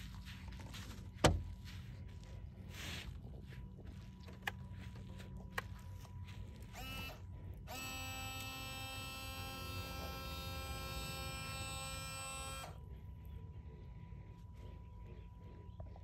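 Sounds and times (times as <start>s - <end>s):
electric water pump whining: 6.5s - 12.8s.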